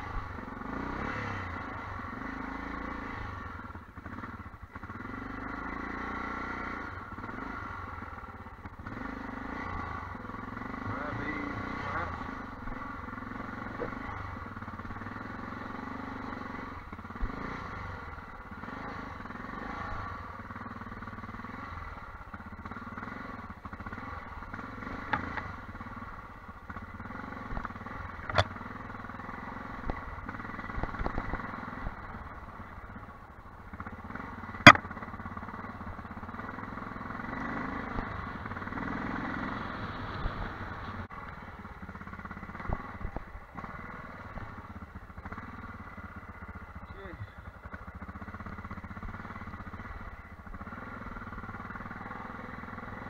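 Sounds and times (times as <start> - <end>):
motorcycle engine running at low revs: 0.0 - 53.0
sharp knock: 34.7 - 34.9.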